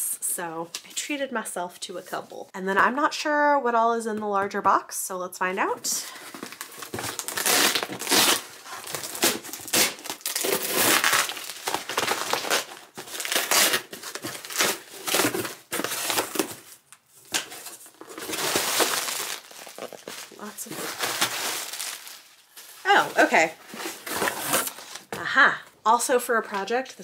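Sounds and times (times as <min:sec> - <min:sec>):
cardboard box tearing: 0:06.4 - 0:22.2, 0:23.7 - 0:25.1
paper packing crumpling: 0:06.4 - 0:23.1.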